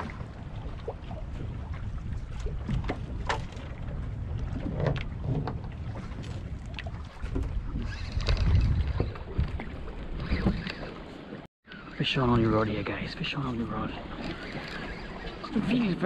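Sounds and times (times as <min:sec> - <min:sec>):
wind buffeting microphone: 0:00.0 - 0:11.2
water slapping against boat hull: 0:00.0 - 0:11.5.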